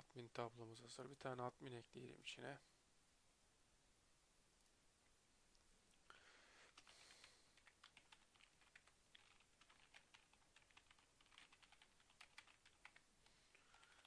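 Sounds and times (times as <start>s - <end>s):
faint keyboard typing: 6.6s - 14.0s.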